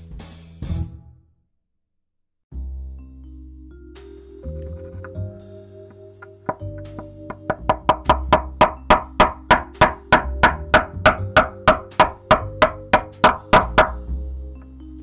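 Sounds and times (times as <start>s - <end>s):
background music: 2.5s - 15.0s
mallet striking chisel: 5.9s - 14.1s.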